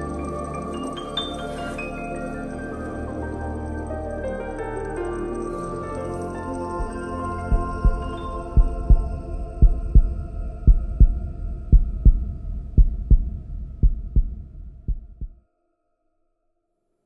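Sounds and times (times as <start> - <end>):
heartbeat thumps: 6.8 - 15.4.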